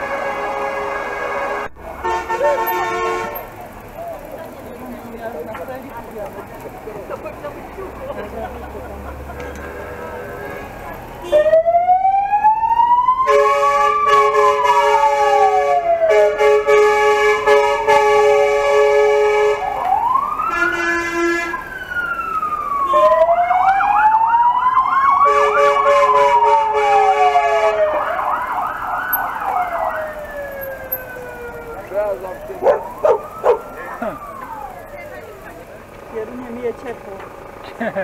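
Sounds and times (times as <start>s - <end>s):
steady blaring siren tone: 10.2s - 16.6s, 17.4s - 35.6s
warbling siren yelp: 11.3s - 16.2s, 21.5s - 35.4s
siren wail: 11.3s - 16.4s, 19.4s - 35.4s.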